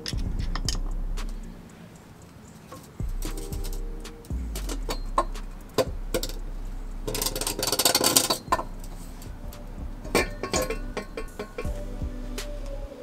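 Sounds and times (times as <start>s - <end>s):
metal clinks and knocks: 0.0s - 6.4s, 7.0s - 11.8s
metal pipe scraping on concrete: 4.6s - 11.8s.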